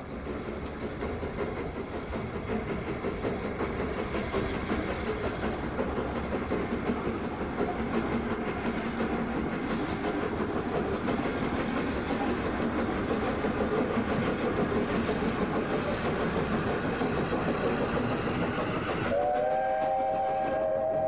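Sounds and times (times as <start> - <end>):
steam locomotive chuffing: 0.0 - 21.0
steam whistle: 19.0 - 21.0.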